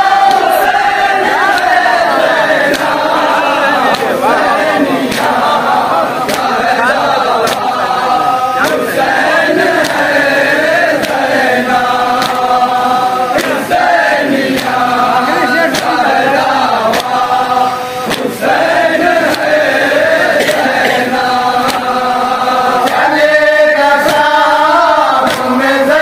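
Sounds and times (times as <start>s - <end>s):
men chanting in unison: 0.0s - 26.0s
hands striking chest: 7.4s - 7.8s, 12.2s - 12.4s.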